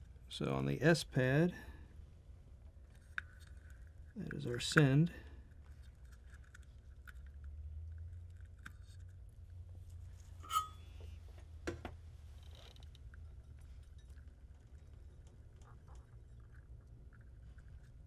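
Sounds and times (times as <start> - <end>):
steady low hum: 0.0 - 18.0
brief ring: 10.4 - 10.9.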